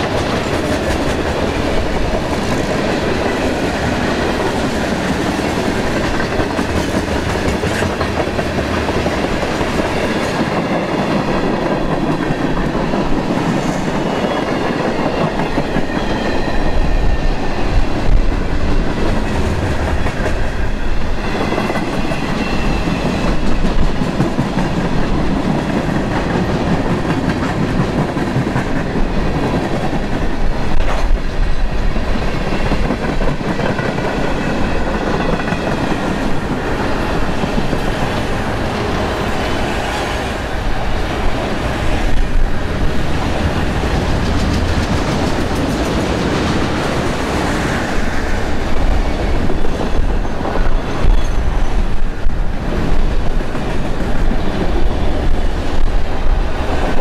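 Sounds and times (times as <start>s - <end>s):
steel wheels clattering on rails: 0.0s - 16.8s, 41.3s - 57.0s
freight train rolling past: 0.0s - 57.0s.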